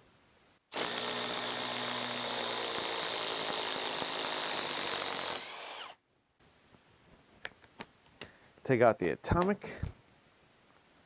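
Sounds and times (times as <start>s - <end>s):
impact driver driving screw into wood: 0.7s - 6.0s.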